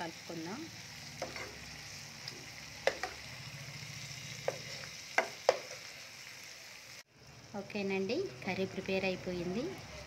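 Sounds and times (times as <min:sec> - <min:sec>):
curry sizzling in frying pan: 0:00.0 - 0:10.0
metal spatula tapping and scraping pan: 0:01.2 - 0:01.6, 0:02.8 - 0:03.2, 0:04.4 - 0:05.9.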